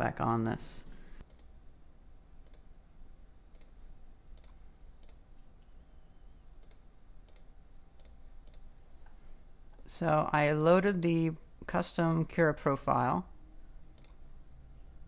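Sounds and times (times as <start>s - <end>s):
computer mouse clicking: 1.2s - 1.6s, 2.4s - 2.7s, 3.5s - 5.5s, 6.5s - 9.2s, 14.0s - 14.2s.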